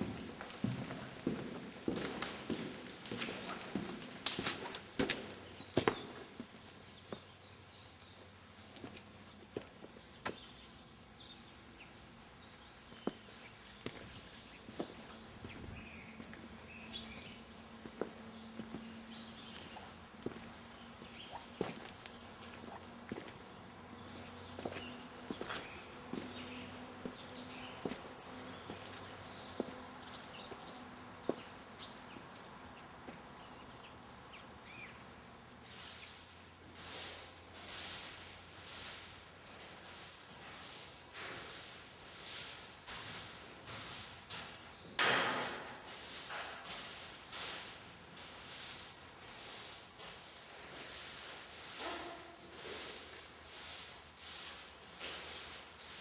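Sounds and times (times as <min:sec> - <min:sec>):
birds chirping: 0:03.3 - 0:36.3.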